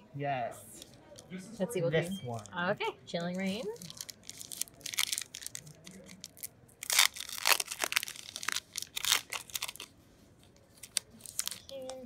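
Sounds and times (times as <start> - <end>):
foil wrapper tearing and crinkling: 3.8 - 9.9, 10.8 - 12.0.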